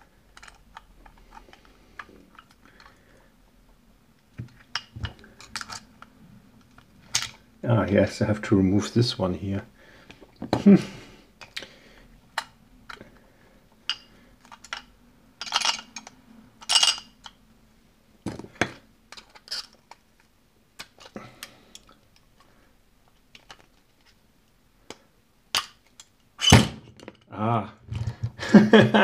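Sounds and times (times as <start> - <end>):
metal padlock clinking and scraping: 0.3 - 1.6, 13.9 - 17.4, 19.1 - 20.0, 26.4 - 27.2.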